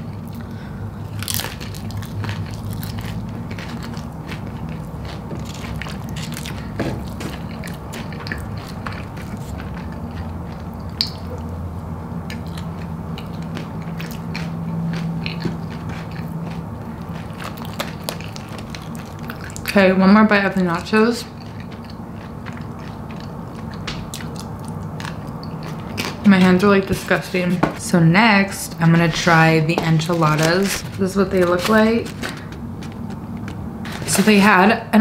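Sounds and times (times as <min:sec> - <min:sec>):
chewing and crunching chips: 0:00.0 - 0:27.9, 0:28.5 - 0:34.7
low steady hum: 0:00.0 - 0:35.0
chips crackling in foil container: 0:29.1 - 0:34.7.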